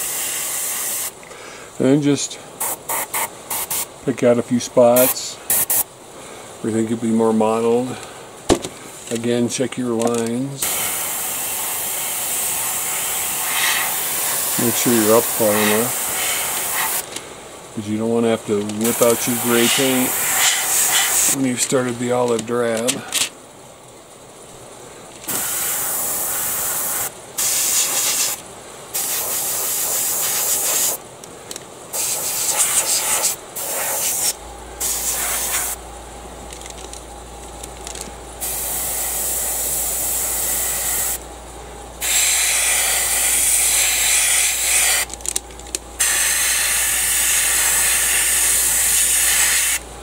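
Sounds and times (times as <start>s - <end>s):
airbrush spraying hiss: 0.0s - 1.2s, 2.6s - 3.9s, 4.9s - 5.9s, 10.6s - 17.1s, 18.8s - 21.4s, 25.3s - 31.0s, 31.9s - 35.8s, 38.4s - 41.2s, 42.0s - 45.1s, 46.0s - 49.8s.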